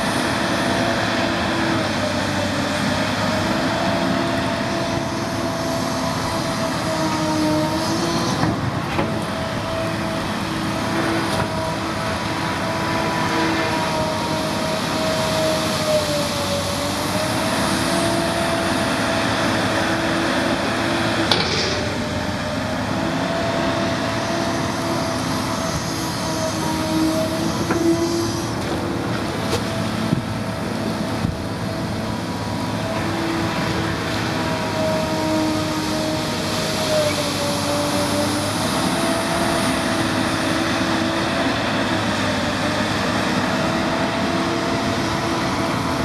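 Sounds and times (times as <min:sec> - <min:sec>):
excavator engine and hydraulics: 0:00.0 - 0:46.0
hydraulic whine wavering in pitch: 0:00.0 - 0:46.0
sharp metal clanks: 0:21.3 - 0:22.2.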